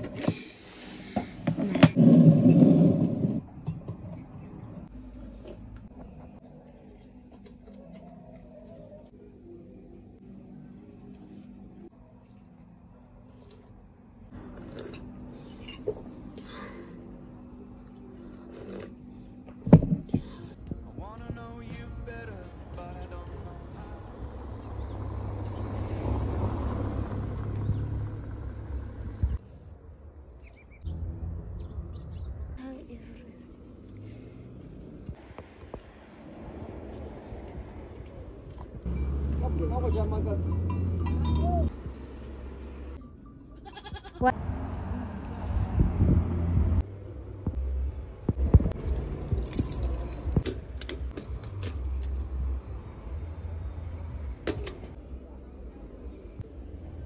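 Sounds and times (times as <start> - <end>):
car passing by: 24.1 - 29.4, 44.4 - 46.9
low rumble: 44.4 - 50.8
metal keys jangling: 48.6 - 52.3.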